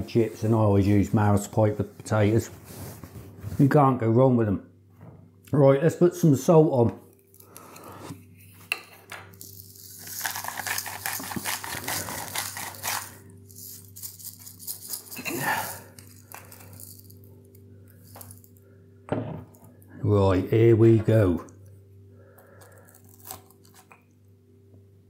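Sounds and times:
salt grinder crushing crystals: 9.3 - 18.6, 22.4 - 24.0.

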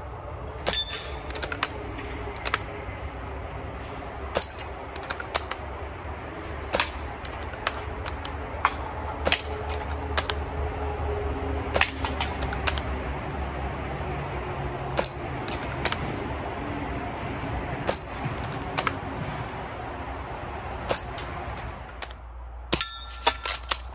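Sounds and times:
air rifle shots: 6.7 - 10.5.

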